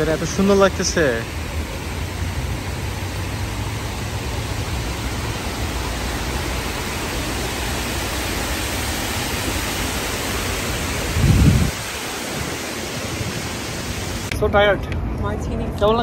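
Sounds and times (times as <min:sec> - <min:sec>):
steady rushing noise: 0:00.0 - 0:16.0.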